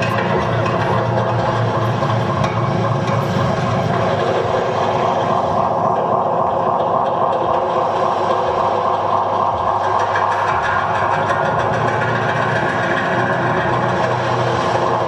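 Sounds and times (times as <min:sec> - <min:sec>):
dense machine-like music drone: 0:00.0 - 0:15.0
low grainy rumble: 0:00.0 - 0:15.0.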